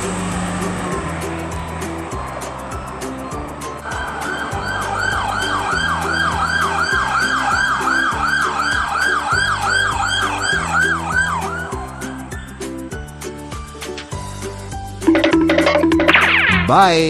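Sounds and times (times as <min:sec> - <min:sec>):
music with a steady beat: 0:00.3 - 0:16.8
police siren yelping: 0:03.8 - 0:12.2.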